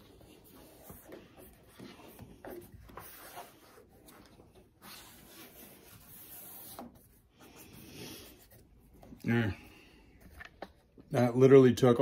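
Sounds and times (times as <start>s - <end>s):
rubber rubbing and scuffing: 0.0s - 9.4s.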